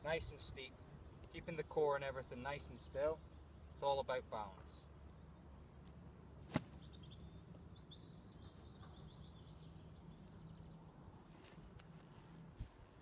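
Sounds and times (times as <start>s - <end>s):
golf club striking sand: 6.4s - 7.0s.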